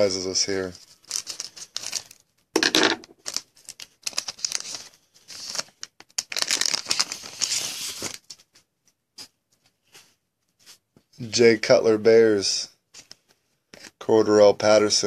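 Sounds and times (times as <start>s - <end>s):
foil wrapper crinkling and tearing: 0.4s - 2.3s, 3.0s - 8.4s.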